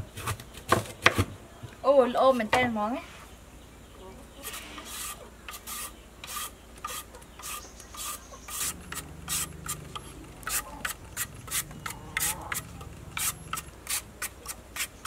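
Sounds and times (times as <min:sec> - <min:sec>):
blade scraping root skin: 0:04.4 - 0:15.0.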